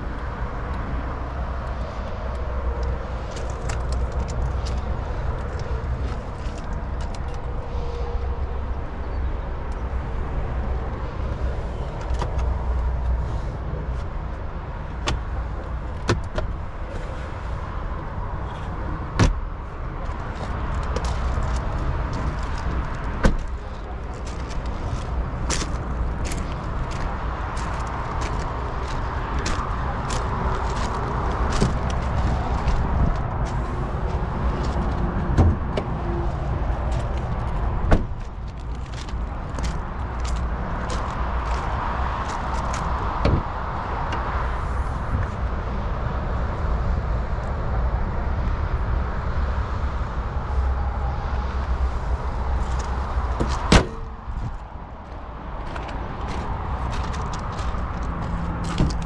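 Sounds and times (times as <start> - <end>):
steady low rumble: 0.0 - 59.0
clicks and knocks of cab fittings: 15.9 - 16.6, 19.2 - 19.4, 53.4 - 54.6
thump: 37.9 - 38.1, 53.4 - 54.0
truck hood clunks: 53.4 - 54.1.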